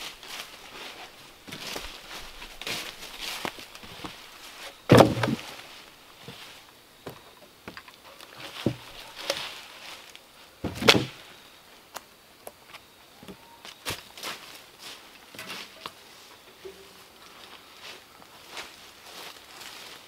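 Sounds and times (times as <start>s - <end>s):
logs thudding onto pile: 2.6s - 6.4s, 7.0s - 9.5s, 10.6s - 11.3s
light wooden knocks: 8.6s - 8.9s.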